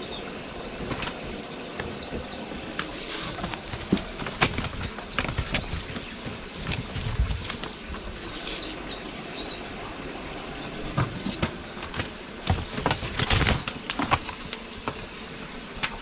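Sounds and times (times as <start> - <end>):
steady background hiss: 0.0 - 16.0
plastic tarpaulin crackling: 2.1 - 8.9, 11.0 - 15.0.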